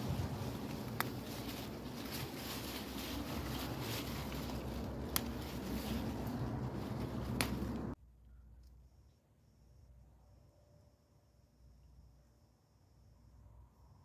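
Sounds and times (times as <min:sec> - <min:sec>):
outdoor noise and rumble: 0:00.0 - 0:08.7.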